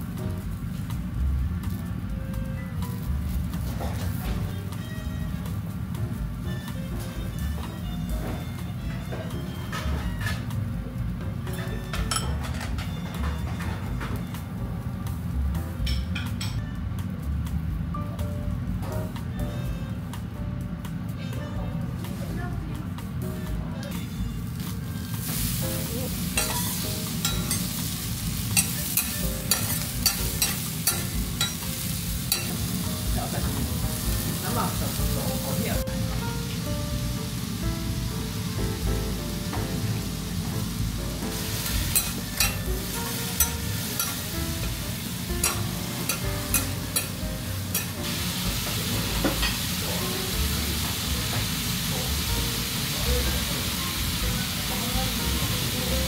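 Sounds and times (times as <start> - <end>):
food sizzling: 0.0 - 19.3, 21.8 - 56.0
metal spatulas clacking on griddle: 26.4 - 27.7, 28.6 - 31.6, 32.3 - 32.6, 41.9 - 42.7, 43.3 - 44.2, 45.4 - 48.0.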